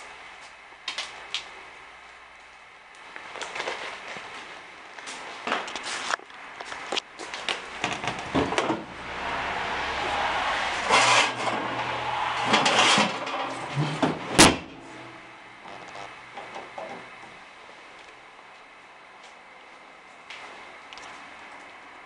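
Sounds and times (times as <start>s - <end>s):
sheet metal scraping and rattling: 7.8s - 15.3s.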